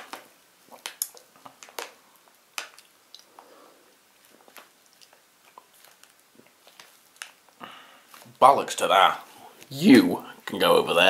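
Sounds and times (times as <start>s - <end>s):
person chewing crunchy snack: 2.6s - 7.6s.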